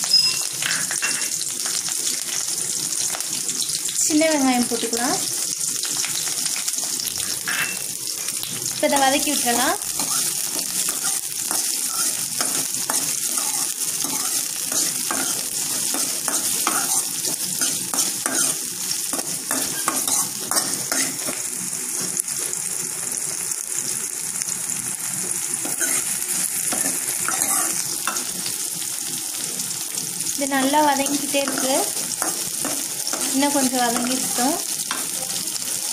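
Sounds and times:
vegetables sizzling in hot oil: 0.0s - 35.9s
metal ladle scraping a pan: 9.9s - 21.4s, 25.6s - 26.1s, 26.7s - 28.3s.

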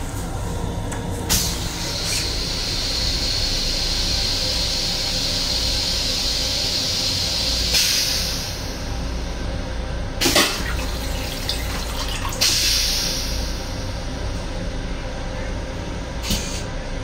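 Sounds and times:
toilet flushing hiss: 1.3s - 8.9s, 10.2s - 13.8s.

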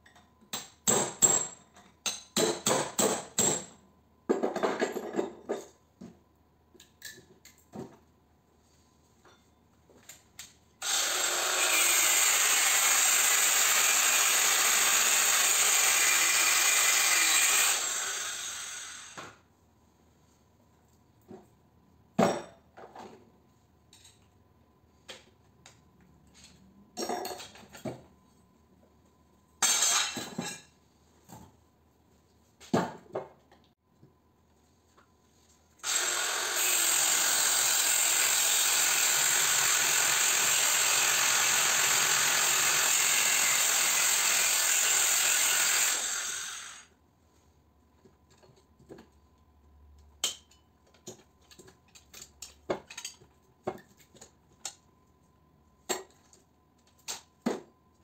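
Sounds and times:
handheld power tool running: 10.8s - 19.2s, 35.8s - 46.9s.

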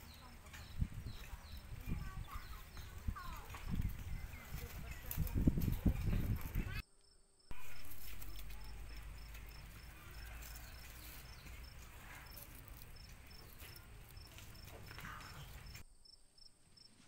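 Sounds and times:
rustling through leafy branches: 0.0s - 6.8s, 7.5s - 15.8s
insect chirping: 6.8s - 17.0s.

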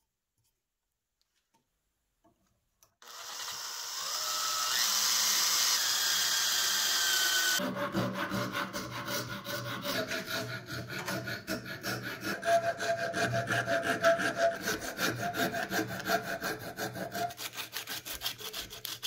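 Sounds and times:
hand file rasping on wood: 7.5s - 19.0s
sandpaper on wood: 11.9s - 19.0s.

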